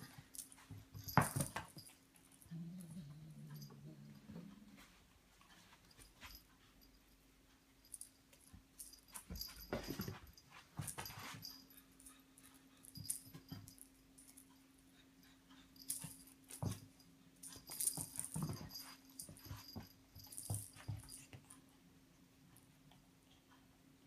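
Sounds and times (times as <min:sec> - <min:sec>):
faint hum: 0:00.0 - 0:24.0
cat scuffling with toy: 0:09.2 - 0:11.6.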